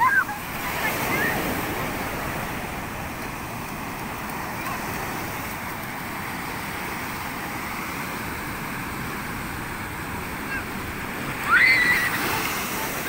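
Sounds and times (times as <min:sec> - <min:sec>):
ocean surf breaking on beach: 0:00.0 - 0:13.0
loud high shout: 0:11.4 - 0:12.7.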